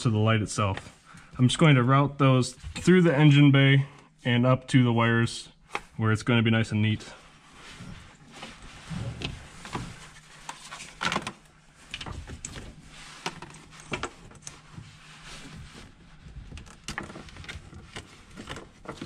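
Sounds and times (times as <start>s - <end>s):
wires clicking and rustling: 8.0s - 19.0s.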